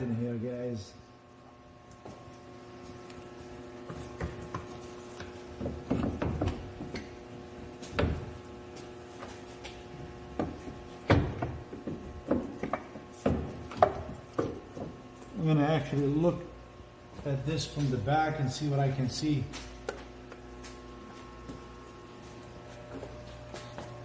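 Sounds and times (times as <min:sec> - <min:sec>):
metal knocks and clunks on wood: 0:10.4 - 0:15.0.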